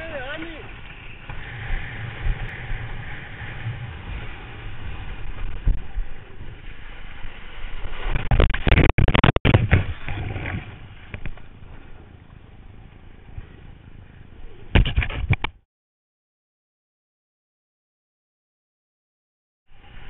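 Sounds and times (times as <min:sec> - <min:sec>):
water splashing over camera: 0:00.6 - 0:11.4.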